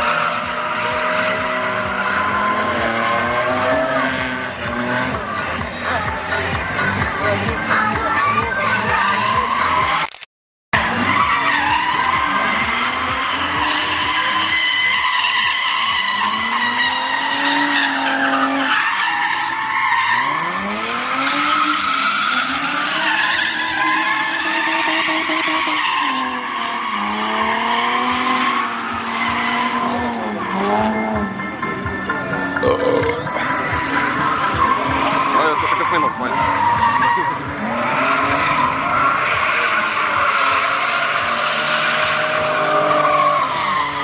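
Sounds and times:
car engine revving: 0.0 - 10.0, 10.8 - 44.0
tyres squealing: 11.0 - 20.6.

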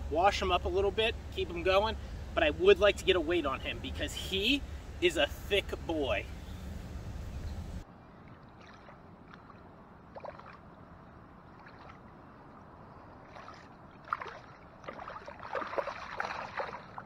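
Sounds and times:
water sloshing and splashing: 8.0 - 17.0
fish thrashing in water: 13.2 - 17.0.

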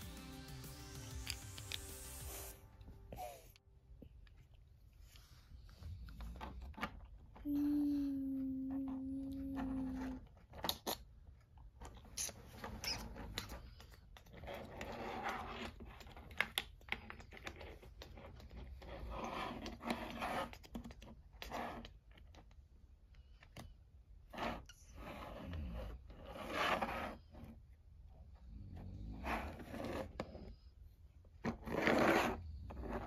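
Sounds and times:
plastic toys clicking and scraping: 8.8 - 22.6.

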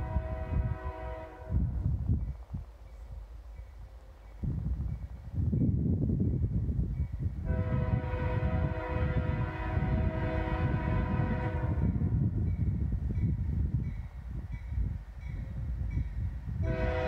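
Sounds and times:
locomotive air horn blast: 0.0 - 1.7, 7.4 - 12.0, 16.6 - 17.0.

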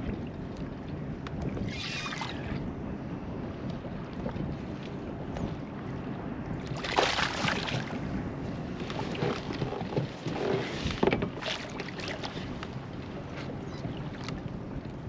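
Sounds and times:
wind on microphone: 0.0 - 15.0
water splashing: 6.8 - 8.0.

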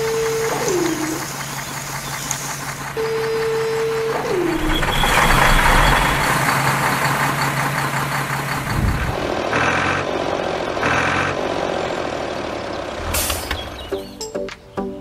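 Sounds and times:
truck engine running: 0.0 - 14.1
short beeps: 4.4 - 6.5.

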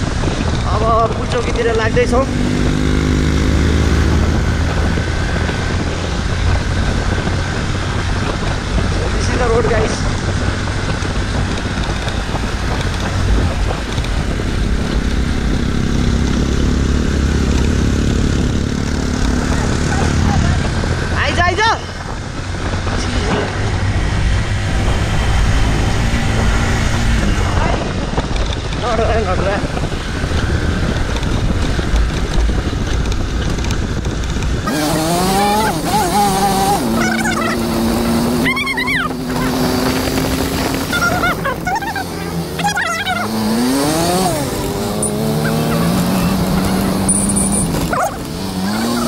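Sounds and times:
motorcycle engine running: 0.0 - 49.0
wind on microphone: 0.0 - 49.0.

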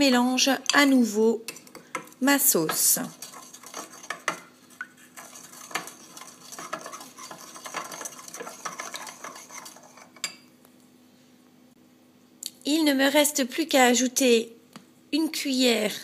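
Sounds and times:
spoon scraping ceramic bowl: 1.5 - 10.5.

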